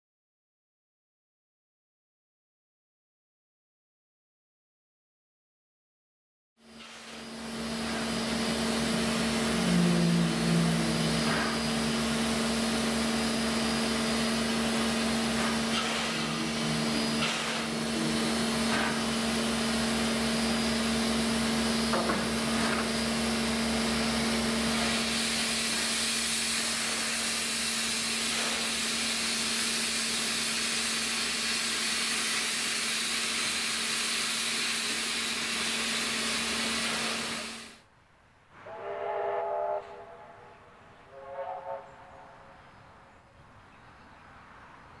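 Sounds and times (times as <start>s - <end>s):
steam hissing: 6.7s - 37.8s
low hum: 7.5s - 21.2s.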